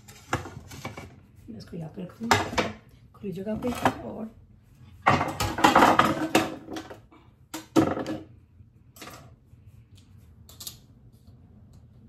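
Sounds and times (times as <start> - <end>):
kitchenware clattering on stone: 5.1 - 7.0.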